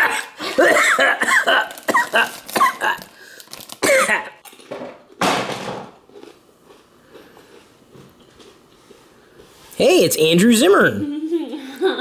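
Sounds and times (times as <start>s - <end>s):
chip bag crinkling: 1.6s - 4.6s
cough-like burst: 3.8s - 4.3s.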